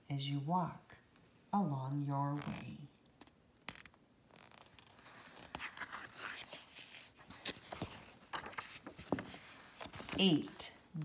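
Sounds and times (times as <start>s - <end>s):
book pages rustling: 2.3s - 10.8s.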